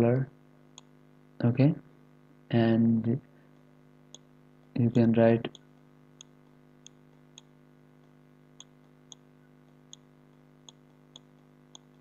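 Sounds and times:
low electrical hum: 0.0s - 12.0s
computer mouse clicks: 3.6s - 12.0s.

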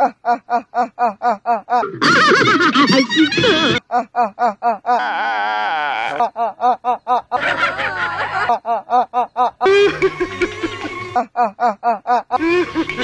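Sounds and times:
rough voices: 4.8s - 8.7s.

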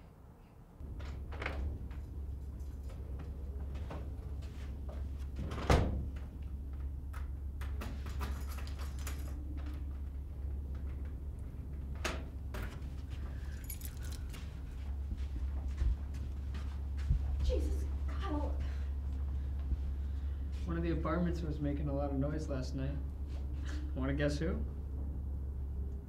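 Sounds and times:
steady low hum: 0.0s - 26.0s
keys jangling: 8.2s - 9.5s, 13.3s - 14.6s.

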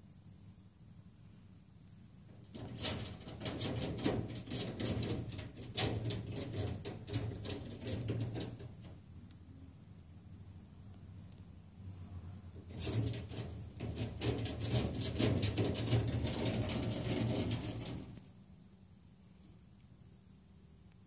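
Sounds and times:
claws scratching on mesh: 2.4s - 8.9s, 12.6s - 18.2s.

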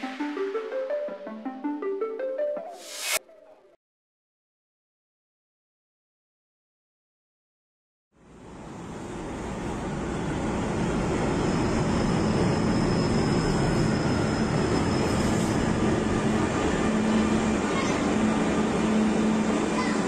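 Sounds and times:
train rumbling past: 8.3s - 20.0s.

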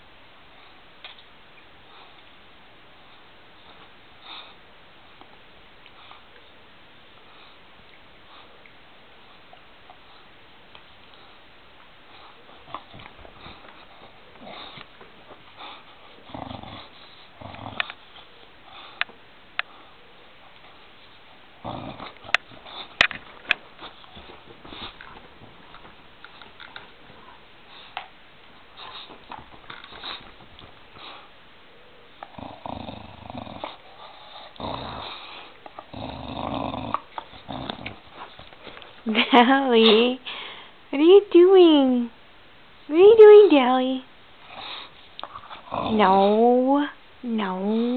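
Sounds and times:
dog chewing: 21.6s - 31.2s, 32.2s - 39.2s
dog sniffing: 21.8s - 31.4s, 44.4s - 46.4s.

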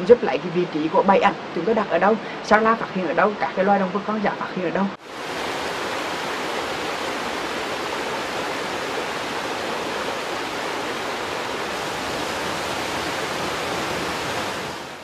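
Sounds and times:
stream rushing over rocks: 5.0s - 15.0s.

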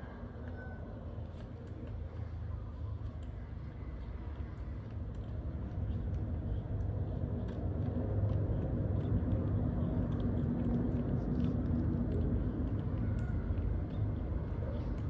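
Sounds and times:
steady low rumble: 0.0s - 15.0s
monkey chewing clicks: 0.2s - 15.0s.

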